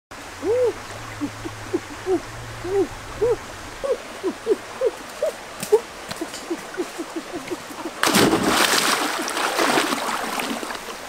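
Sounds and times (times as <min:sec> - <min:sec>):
chorus of animal calls: 0:00.2 - 0:08.0.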